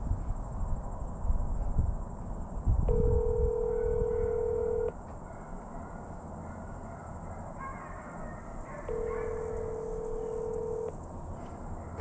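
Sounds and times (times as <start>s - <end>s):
wind rumble on microphone: 0.0s - 4.9s.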